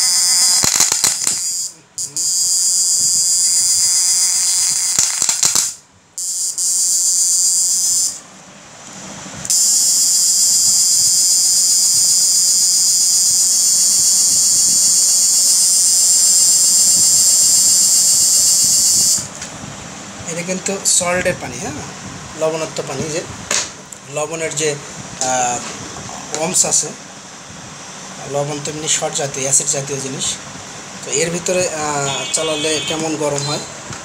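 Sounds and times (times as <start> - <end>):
high-pitched electronic whine: 0.0 - 8.3, 9.4 - 19.4, 31.0 - 33.8.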